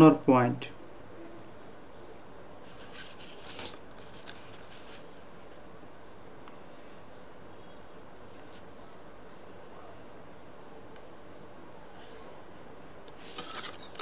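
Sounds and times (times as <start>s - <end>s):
plastic rulers sliding on paper: 13.1s - 14.0s.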